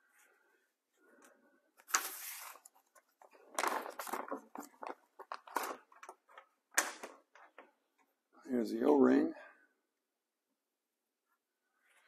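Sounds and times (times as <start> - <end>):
plastic bag rustling and crinkling: 1.9 - 6.5.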